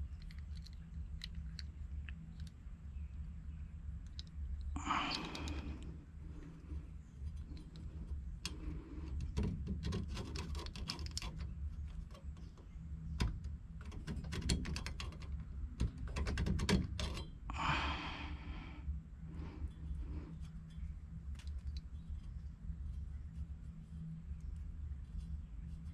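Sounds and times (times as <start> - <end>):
steady low hum: 0.0 - 25.9
tools and pipe clicking: 5.0 - 5.8, 7.4 - 17.4.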